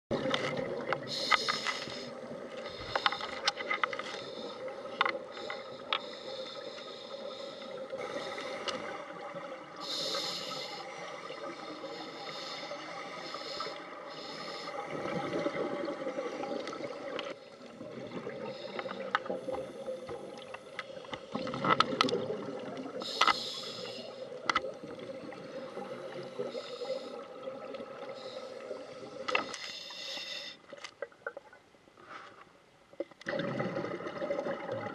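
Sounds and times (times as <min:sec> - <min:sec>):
underwater murmur and bubbles: 0:00.1 - 0:34.9
regulator breath hissing: 0:01.1 - 0:09.1, 0:09.8 - 0:14.9, 0:23.0 - 0:24.4, 0:26.1 - 0:27.3, 0:28.1 - 0:30.6.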